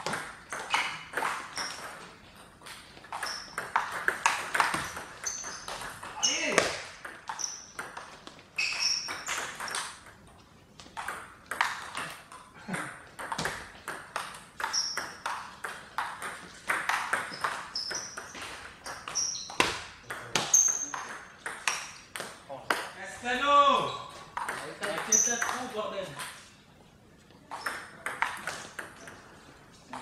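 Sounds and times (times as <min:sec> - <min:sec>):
shoes squeaking on floor: 0:00.0 - 0:10.9, 0:14.5 - 0:15.7, 0:16.4 - 0:22.1, 0:23.7 - 0:26.6.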